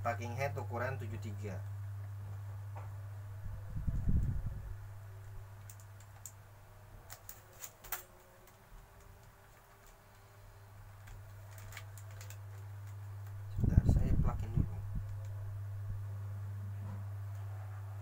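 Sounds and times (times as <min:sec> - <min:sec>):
low steady hum: 0:00.0 - 0:18.0
plastic wrapping clicks and crinkles: 0:05.2 - 0:06.4, 0:07.0 - 0:13.5.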